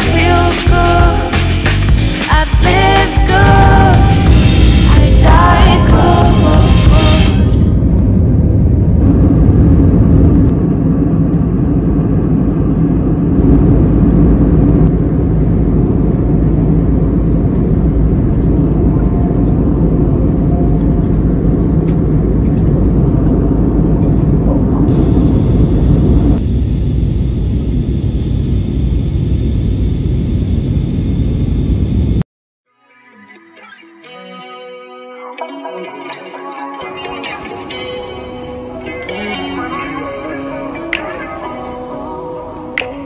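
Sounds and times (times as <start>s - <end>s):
jet engine cabin rumble: 3.4s - 32.2s.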